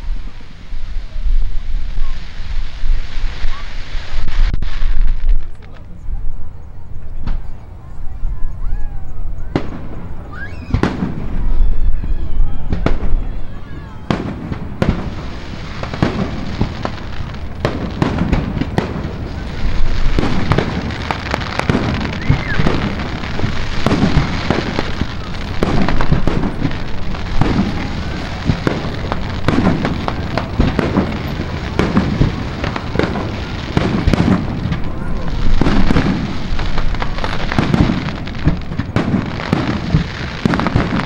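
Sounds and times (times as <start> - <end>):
fireworks bangs: 0.0 - 6.1, 9.4 - 41.0.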